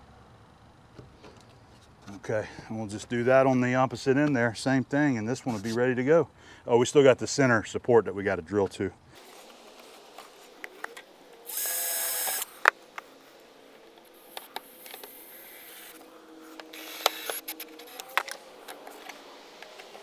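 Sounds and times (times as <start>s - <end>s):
cordless drill drilling plastic: 11.5s - 12.5s, 16.6s - 18.3s.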